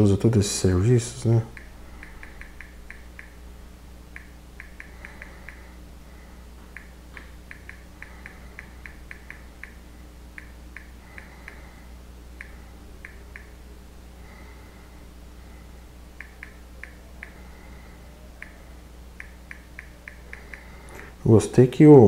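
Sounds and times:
steady low hum: 0.0 - 22.0
phone keyboard clicks: 1.5 - 3.4, 4.2 - 5.6, 6.7 - 9.8.

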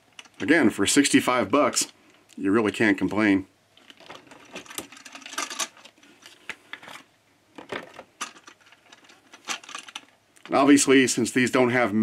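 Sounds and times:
plastic clicks and rattles: 3.8 - 10.5.

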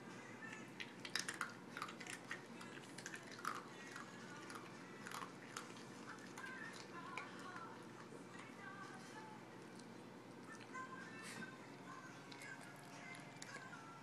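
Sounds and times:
dog chewing with wet smacking: 0.7 - 8.5, 12.0 - 14.0.

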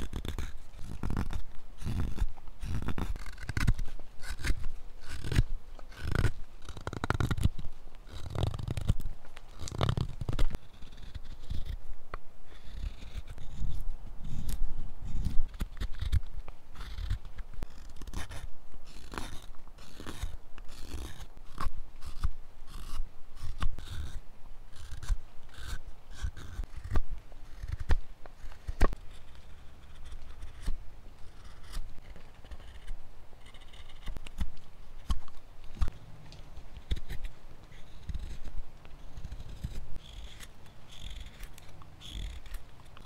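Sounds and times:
knife scraping wood: 0.0 - 43.0.

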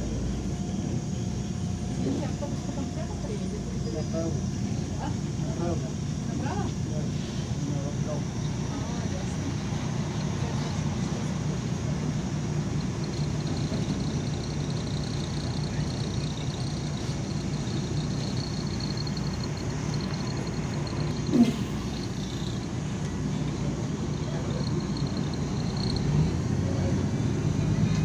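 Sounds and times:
bus engine and road rumble: 0.0 - 28.0
faint high whine: 0.0 - 28.0.

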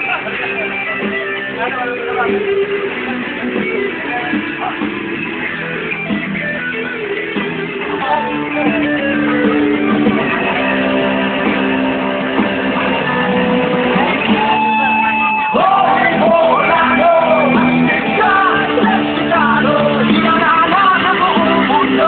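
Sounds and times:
guitar strumming: 0.0 - 22.0
people shouting: 10.2 - 22.0
person singing: 14.2 - 22.0.

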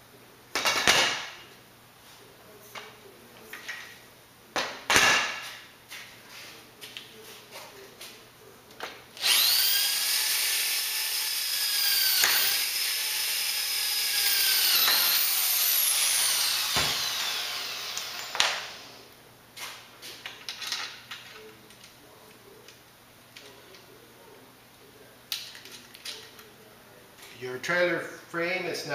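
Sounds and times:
power drill boring through metal: 9.2 - 19.0.

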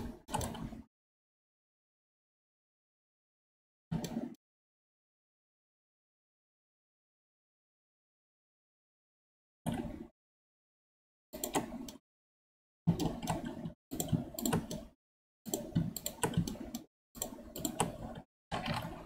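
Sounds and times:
keyboard and mouse clicking: 0.0 - 0.8, 3.9 - 4.4, 11.4 - 12.0, 12.9 - 19.0.

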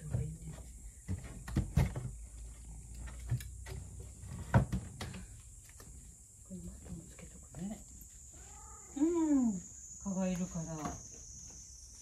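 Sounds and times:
sharp knocks and bumps: 0.0 - 5.3.

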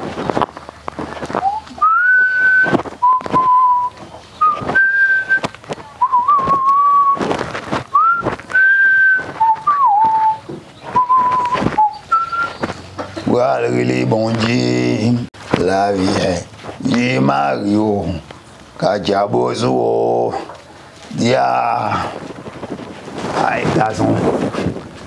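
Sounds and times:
person whistling a tune: 1.4 - 7.2, 7.9 - 12.6.

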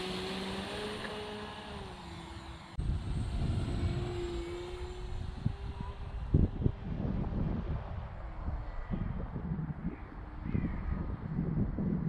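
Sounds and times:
model airplane motor whining: 0.0 - 6.6
wind rumble on microphone: 2.8 - 12.0.

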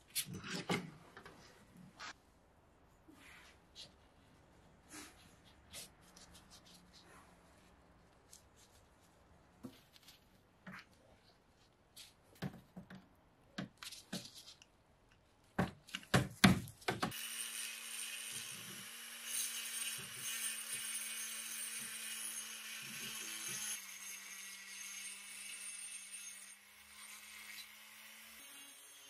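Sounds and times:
rotary tool grinding metal: 17.1 - 29.0.

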